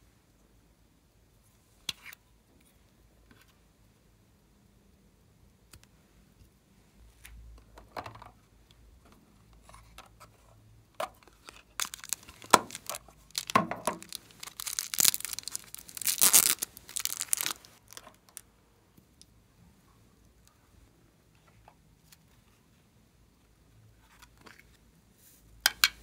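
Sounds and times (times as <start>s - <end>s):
plastic packet crinkling and tearing: 11.2s - 18.4s.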